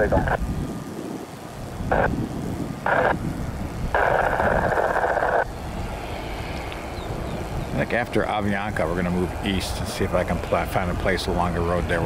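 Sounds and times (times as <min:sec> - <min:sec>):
radio static bursts: 0:00.0 - 0:05.9
low steady rumble: 0:00.0 - 0:12.0.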